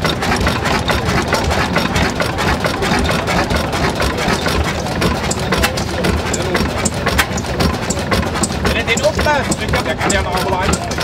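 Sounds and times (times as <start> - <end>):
stationary engine running: 0.0 - 11.0.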